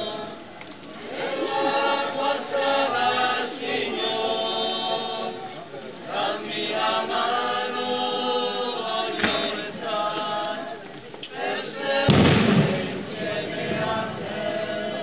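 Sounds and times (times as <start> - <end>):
congregation singing a hymn: 0.0 - 15.0
thump: 9.2 - 9.5, 12.1 - 13.0.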